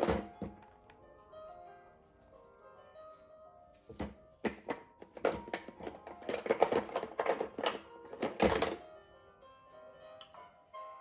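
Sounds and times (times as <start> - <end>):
faint music: 0.0 - 11.0
knocking and tapping: 3.9 - 8.8.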